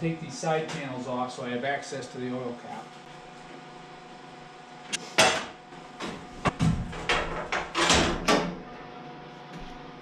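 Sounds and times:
sheet metal knocks and rattles: 6.5 - 8.6.

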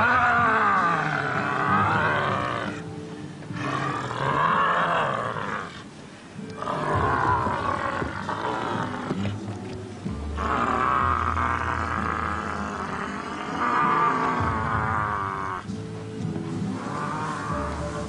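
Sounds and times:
monster roaring: 0.0 - 2.8, 10.4 - 15.6.

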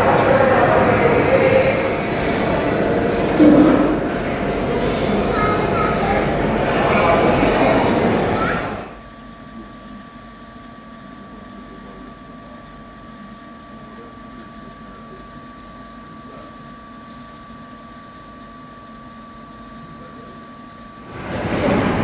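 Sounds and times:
low hum: 0.0 - 8.9
high-pitched whine: 0.0 - 9.0.

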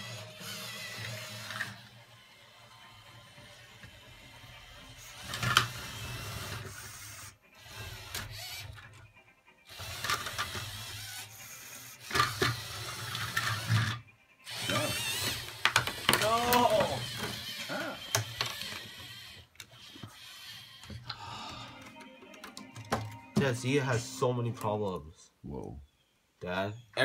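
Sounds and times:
electric motors whirring: 0.0 - 9.0, 9.7 - 21.6
plastic gears clicking: 5.1 - 8.9, 9.8 - 21.2.

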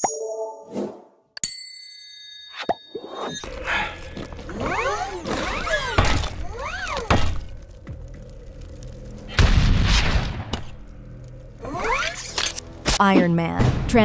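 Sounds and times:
loud deep crash: 5.5 - 11.0.

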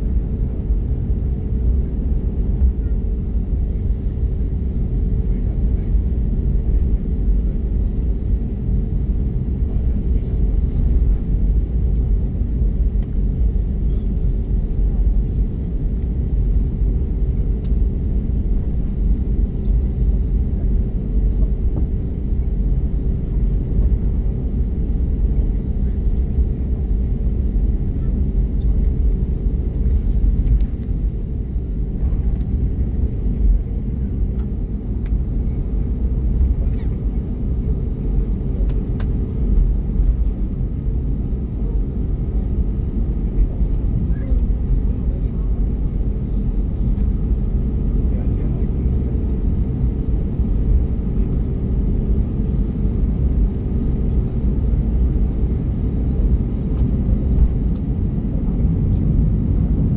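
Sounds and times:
aircraft cabin rumble: 0.0 - 59.9
mid-pitched engine hums: 0.0 - 59.9.

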